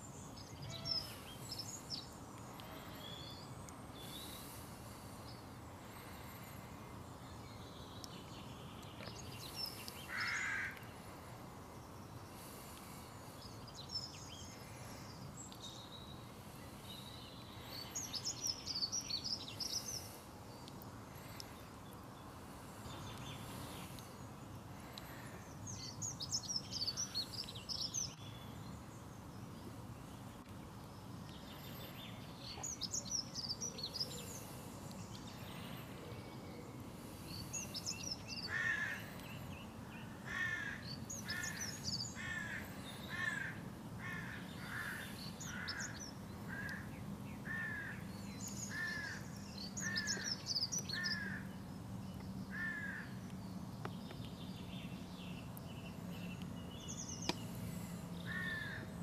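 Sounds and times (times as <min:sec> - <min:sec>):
background noise: 0:00.0 - 0:59.0
harsh low bird calls: 0:09.0 - 0:11.0, 0:31.4 - 0:51.4
songbird twittering: 0:11.9 - 0:29.7, 0:31.2 - 0:58.8.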